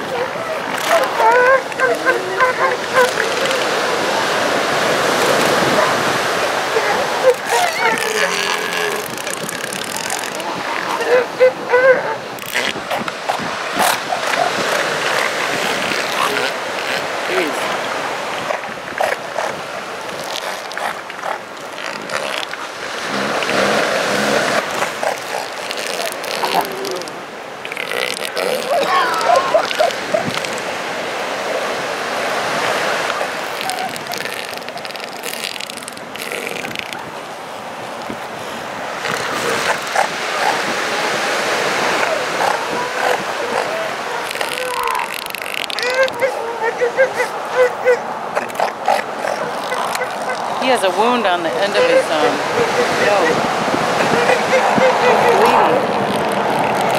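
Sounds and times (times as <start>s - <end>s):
elephant seals calling: 0.0s - 31.7s, 32.3s - 37.1s, 38.8s - 56.9s
surf: 0.0s - 56.9s
low pulsing seal call: 5.1s - 17.6s.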